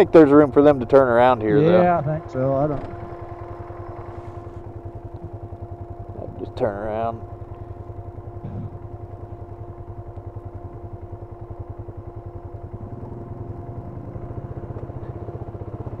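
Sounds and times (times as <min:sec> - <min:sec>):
atv engine running: 0:00.0 - 0:16.0
steady whine: 0:00.0 - 0:16.0.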